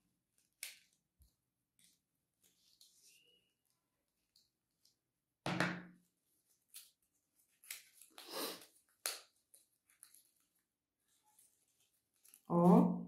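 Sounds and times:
knock on worktable: 5.5 - 5.9.

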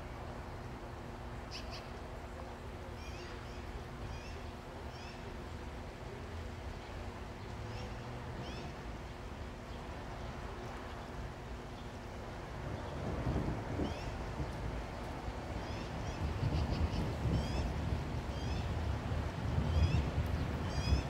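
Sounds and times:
steady rain falling: 9.0 - 21.0.

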